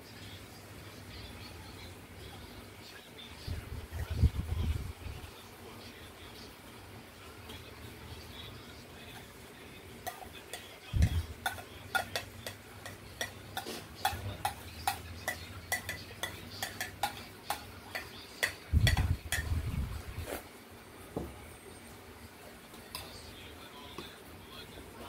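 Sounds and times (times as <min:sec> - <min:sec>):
spoon scraping and tapping a plate: 0:10.0 - 0:19.6.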